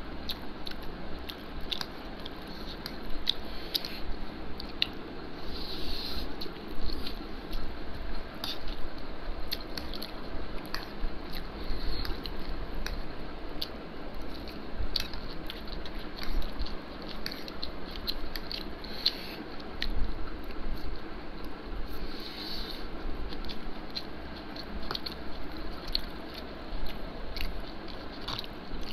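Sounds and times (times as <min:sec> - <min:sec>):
chewing and slurping noodles: 0:00.3 - 0:07.7, 0:21.9 - 0:28.9.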